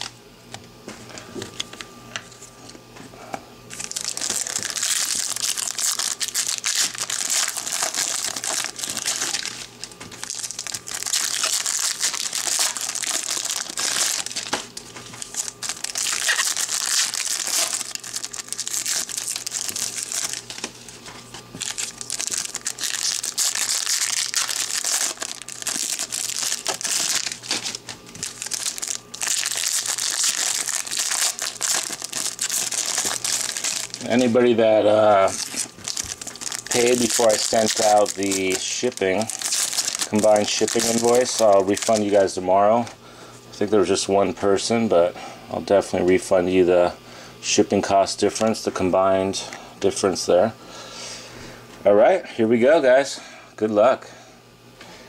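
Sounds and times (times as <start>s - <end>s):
foil wrappers crinkling: 3.7s - 42.9s.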